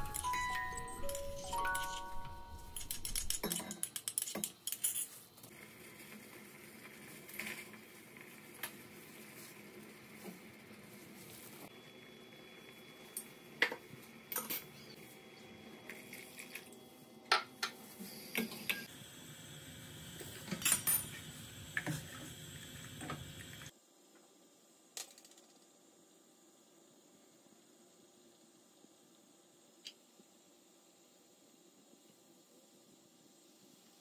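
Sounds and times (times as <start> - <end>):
faint simmering hiss: 5.3 - 34.0.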